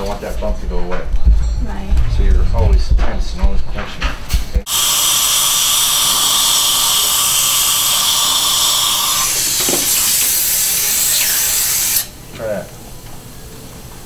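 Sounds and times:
dental drill whining: 0:04.7 - 0:12.1
dental drill hiss: 0:04.7 - 0:12.2.

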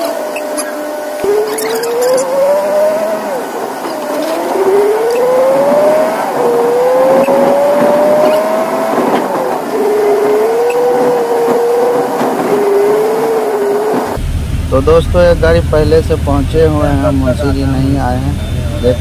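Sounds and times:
truck diesel engine accelerating: 0:00.0 - 0:19.0.

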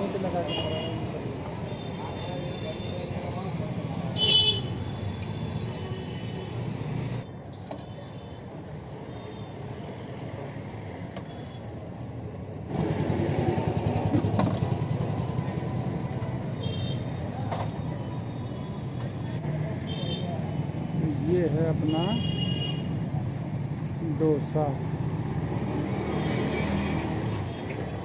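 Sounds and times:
vehicle engines running: 0:12.5 - 0:16.6.

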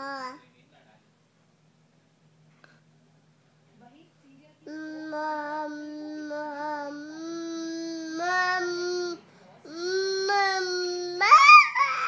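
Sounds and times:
toddler whining angrily: 0:09.8 - 0:12.0.

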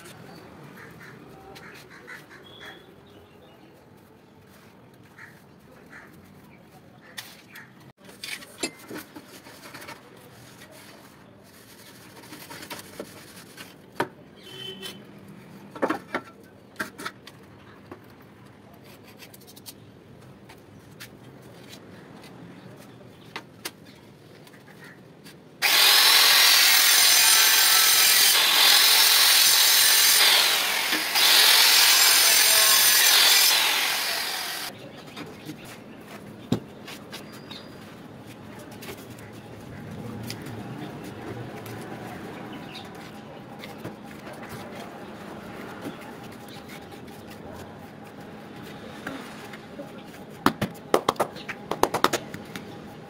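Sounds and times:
electric tile cutter cutting tile: 0:25.6 - 0:34.7.

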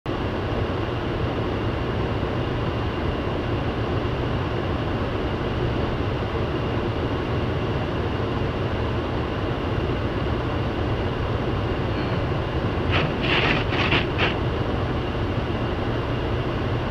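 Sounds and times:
car road and engine rumble: 0:00.1 - 0:16.9
heater blower running: 0:11.2 - 0:14.7.

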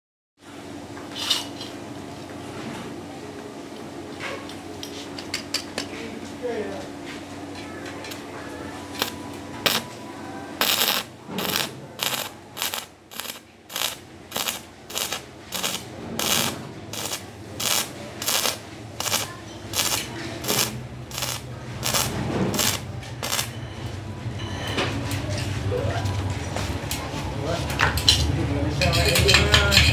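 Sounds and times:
welding arc crackling: 0:08.9 - 0:09.8, 0:10.6 - 0:23.5
arc striking scratches: 0:09.0 - 0:09.9, 0:10.6 - 0:23.6.

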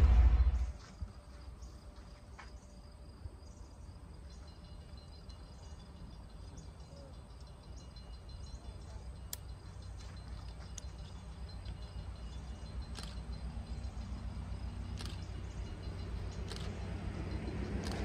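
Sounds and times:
low even rumble: 0:00.0 - 0:00.8
faint insects chirping: 0:00.0 - 0:18.0.

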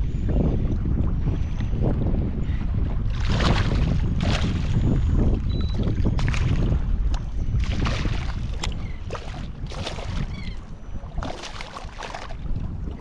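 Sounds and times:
wind rumbling on microphone: 0:00.0 - 0:13.0
fish splashing in water: 0:11.1 - 0:12.4.

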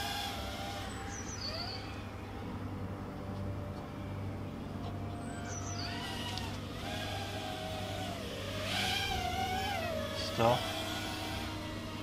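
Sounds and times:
quadcopter motors whining: 0:00.0 - 0:02.2, 0:05.3 - 0:12.0.

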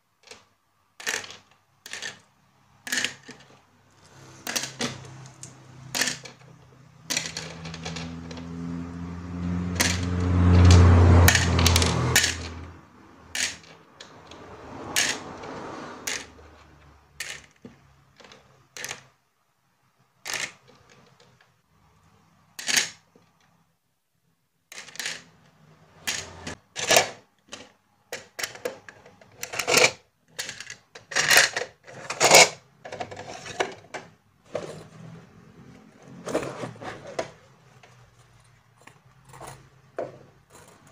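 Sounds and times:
plastic charms clicking on plastic: 0:00.2 - 0:03.6, 0:04.4 - 0:08.4, 0:11.3 - 0:12.7, 0:13.3 - 0:14.4.

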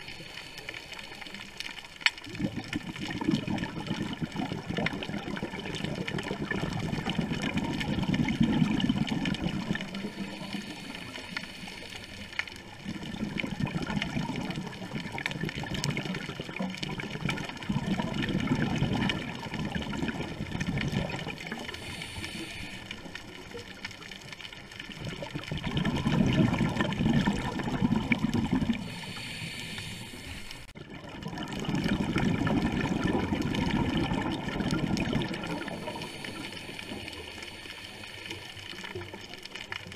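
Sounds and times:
exhaled bubbles rumbling: 0:00.0 - 0:39.9
diver breathing through regulator: 0:08.7 - 0:12.4, 0:21.5 - 0:23.2, 0:28.7 - 0:30.7, 0:35.2 - 0:38.4.

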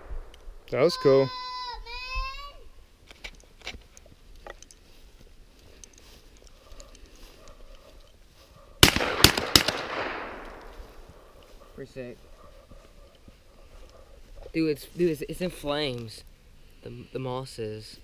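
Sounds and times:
faint clicks: 0:05.5 - 0:08.2
loud sharp bangs: 0:08.8 - 0:10.7.

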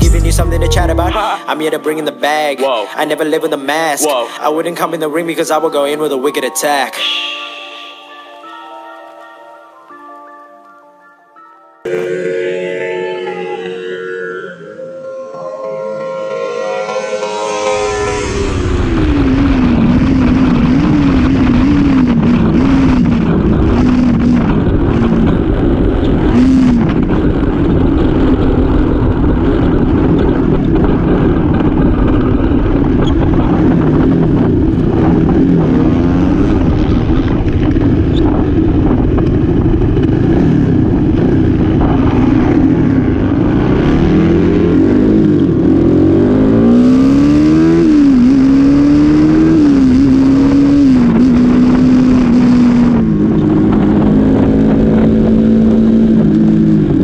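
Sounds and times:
motorcycle engine revving: 0:00.0 - 0:01.2, 0:17.2 - 0:57.0
wind noise on microphone: 0:18.3 - 0:57.0.

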